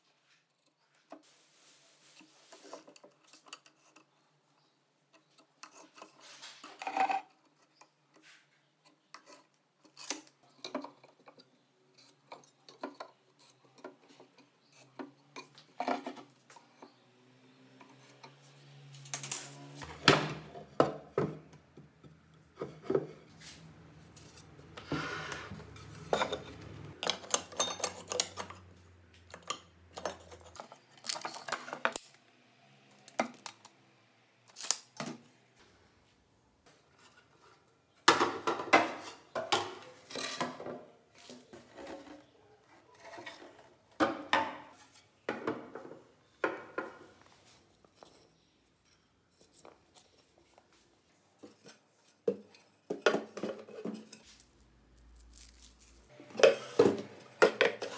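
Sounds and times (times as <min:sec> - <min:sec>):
objects handled on workbench: 0:17.8 - 0:32.1, 0:51.4 - 0:57.9.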